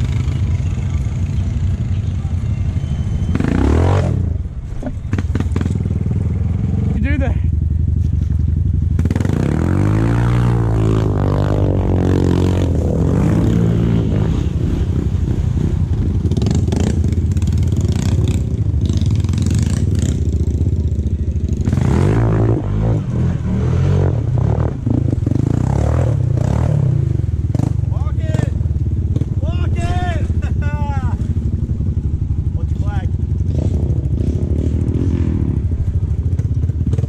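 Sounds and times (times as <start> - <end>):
atv engine revving: 0.0 - 37.0
water churning and splashing: 12.6 - 21.0.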